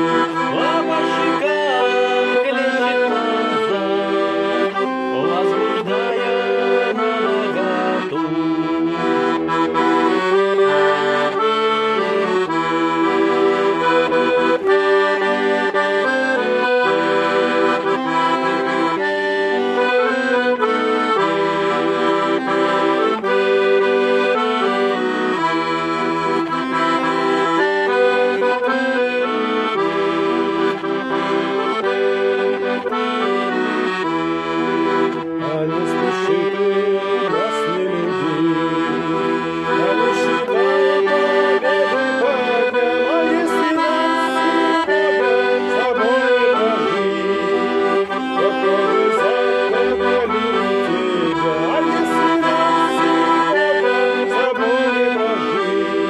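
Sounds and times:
accordion playing melody: 0.0 - 56.0
man singing: 0.3 - 9.1, 35.2 - 56.0.

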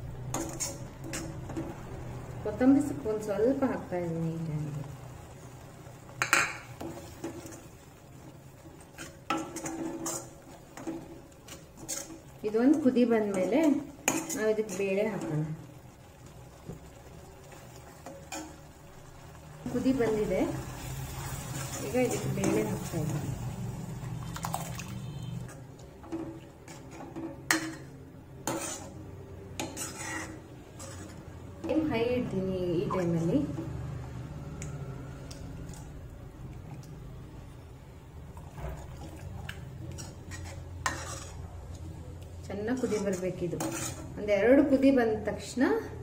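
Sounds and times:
ladle stirring thick mixture: 0.0 - 2.5, 4.8 - 44.3
ladle scraping and knocking pan: 0.2 - 2.0, 6.1 - 15.5, 19.7 - 23.4, 25.1 - 31.9, 38.5 - 41.8, 42.5 - 44.2.

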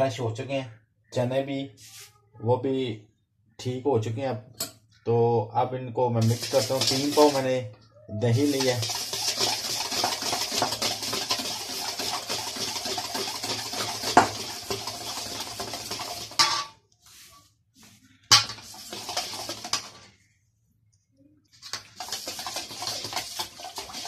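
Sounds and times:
whisk scraping a metal bowl: 6.2 - 7.6, 8.2 - 16.7, 18.3 - 20.1, 21.6 - 24.0.

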